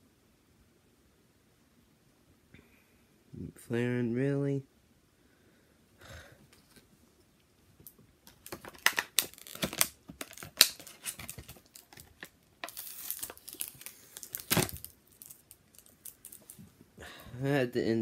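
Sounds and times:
plastic packaging crinkling: 0:07.8 - 0:16.6.

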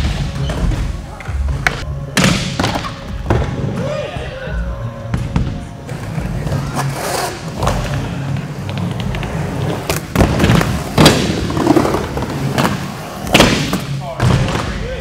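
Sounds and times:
skateboard wheels rolling on wood: 0:05.8 - 0:13.2.

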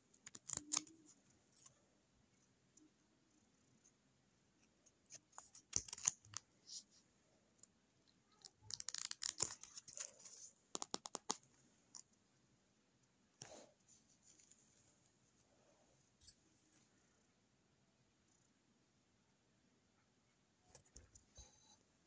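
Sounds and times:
paper and card rustling: 0:00.2 - 0:01.7, 0:05.1 - 0:06.9, 0:08.4 - 0:11.4.

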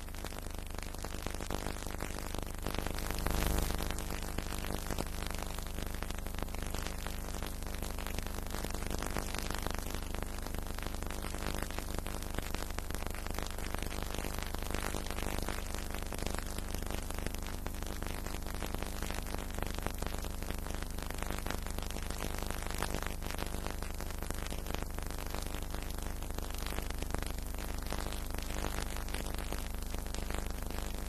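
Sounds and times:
faint crackle: 0:00.0 - 0:31.0.

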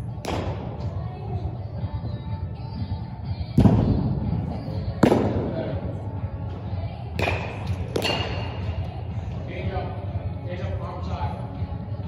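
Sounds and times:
background music: 0:00.0 - 0:12.0
baseballs smacking into gloves: 0:00.2 - 0:00.9, 0:05.0 - 0:05.6, 0:07.1 - 0:08.8.

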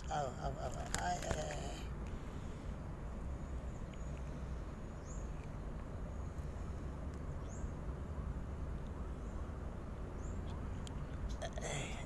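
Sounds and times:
bird chirp: 0:03.3 - 0:11.5.

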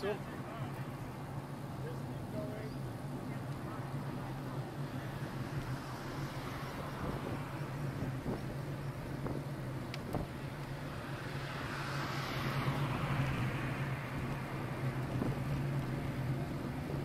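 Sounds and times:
wind and road noise: 0:00.0 - 0:17.0
car passing by: 0:03.6 - 0:09.4, 0:10.0 - 0:17.0.

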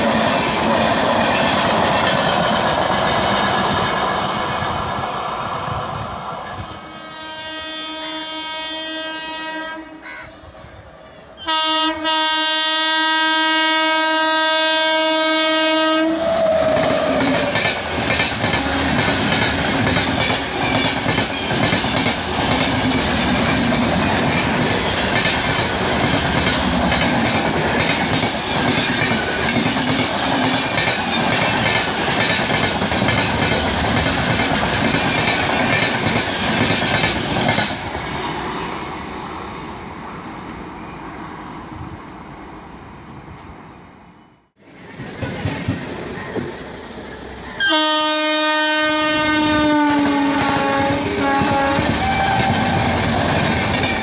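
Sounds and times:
locomotive horn blasts: 0:06.8 - 0:10.0, 0:11.4 - 0:16.8, 0:18.5 - 0:19.1, 0:47.6 - 0:52.7
train wheels clattering over rail joints: 0:16.7 - 0:37.9, 0:50.0 - 0:54.0.

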